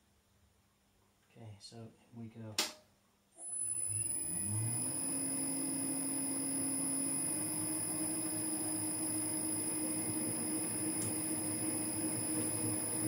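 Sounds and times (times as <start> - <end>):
metal lathe motor humming and whining: 3.5 - 13.0.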